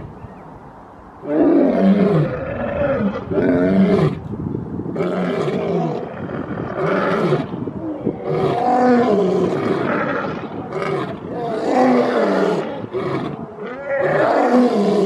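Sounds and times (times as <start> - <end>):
lions roaring: 5.0 - 15.0.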